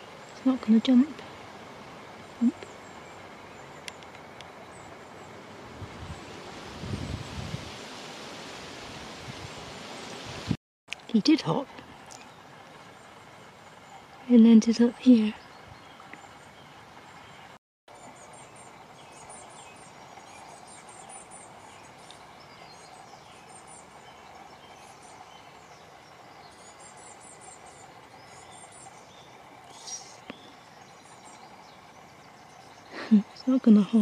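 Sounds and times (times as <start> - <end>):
faint background hum: 10.9 - 34.0.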